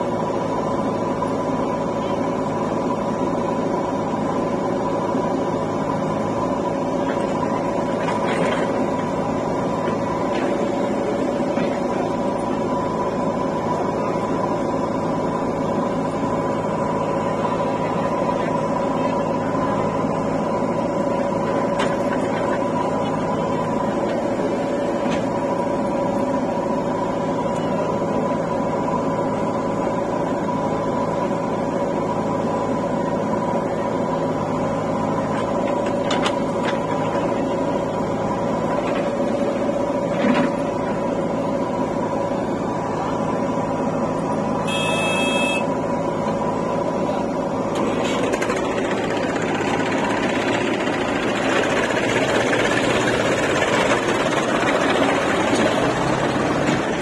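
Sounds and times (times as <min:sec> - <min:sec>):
diesel engines running: 0:00.0 - 0:57.0
high beep: 0:44.6 - 0:45.7.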